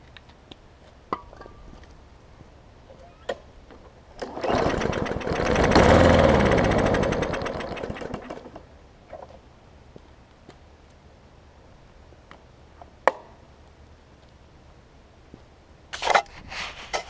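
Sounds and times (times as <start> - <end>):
lawn mower engine starting and stalling: 4.1 - 8.8.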